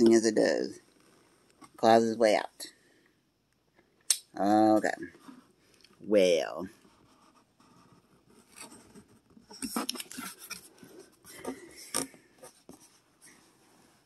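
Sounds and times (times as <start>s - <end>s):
cardboard rubbing and scraping: 6.8s - 14.0s.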